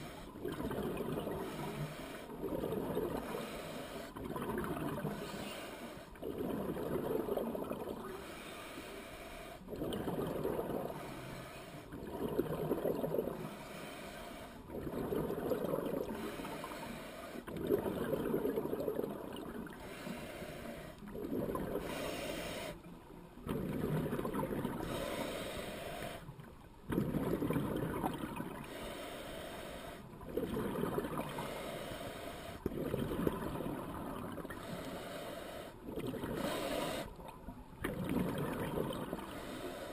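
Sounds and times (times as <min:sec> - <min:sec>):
exhaled bubbles rushing: 0:00.4 - 0:01.5, 0:02.4 - 0:03.4, 0:04.2 - 0:05.3, 0:06.2 - 0:08.0, 0:09.7 - 0:11.0, 0:11.9 - 0:13.4, 0:14.7 - 0:16.2, 0:17.5 - 0:19.8, 0:23.4 - 0:25.0, 0:26.9 - 0:28.6, 0:30.2 - 0:31.5, 0:32.6 - 0:34.6, 0:37.8 - 0:39.3
diver breathing through regulator: 0:01.1 - 0:04.2, 0:05.0 - 0:06.1, 0:08.0 - 0:09.8, 0:10.5 - 0:12.0, 0:13.2 - 0:14.8, 0:16.1 - 0:17.6, 0:19.6 - 0:22.9, 0:24.7 - 0:26.3, 0:28.6 - 0:30.1, 0:31.2 - 0:32.9, 0:34.5 - 0:37.3, 0:39.1 - 0:39.9.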